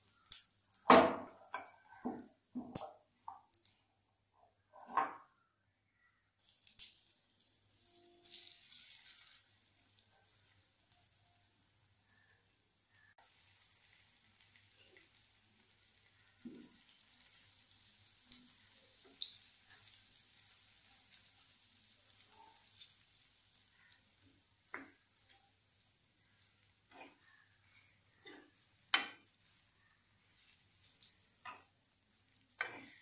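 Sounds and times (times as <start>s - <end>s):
faint oil sizzle: 0.0s - 3.8s, 6.3s - 33.0s
spoon scraping and knocking pan: 28.2s - 29.4s.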